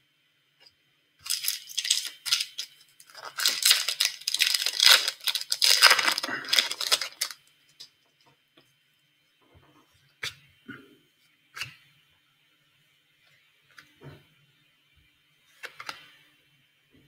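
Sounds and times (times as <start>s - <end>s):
plastic packaging crinkling: 1.2s - 7.4s.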